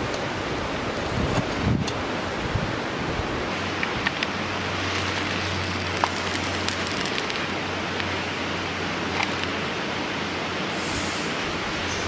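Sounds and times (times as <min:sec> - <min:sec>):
fast-flowing river rushing: 0:02.1 - 0:10.7
wood fire crackling: 0:04.3 - 0:08.4, 0:09.0 - 0:09.6.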